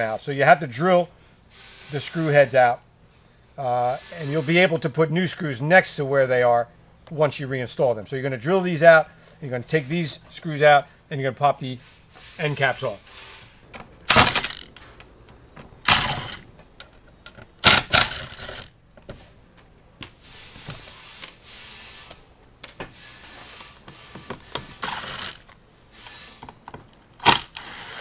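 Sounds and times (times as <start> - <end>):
handling noise: 13.7 - 20.9
cordless drill bursts: 15.9 - 16.4, 17.6 - 18.7, 23.0 - 26.4, 27.2 - 28.0.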